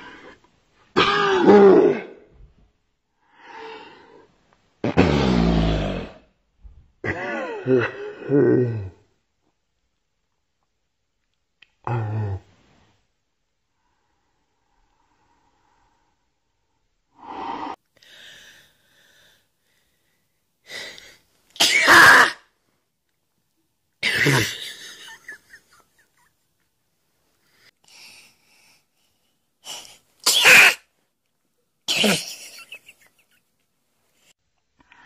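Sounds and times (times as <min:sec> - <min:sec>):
woman sneezing: 0:30.3 - 0:30.8.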